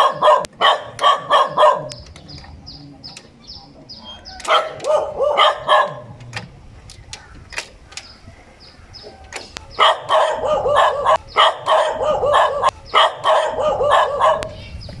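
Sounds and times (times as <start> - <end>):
dog barking rapidly: 0.0 - 2.0, 4.4 - 6.1, 9.7 - 14.6.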